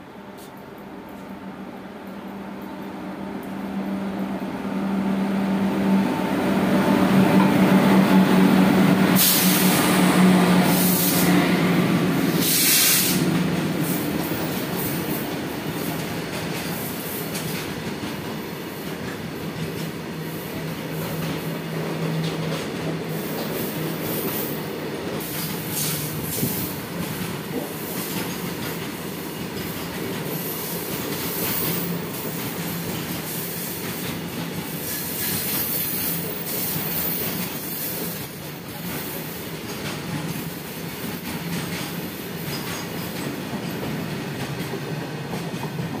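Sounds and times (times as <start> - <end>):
freight train rumbling past: 0.0 - 46.0
train wheels clattering over joints: 38.8 - 46.0.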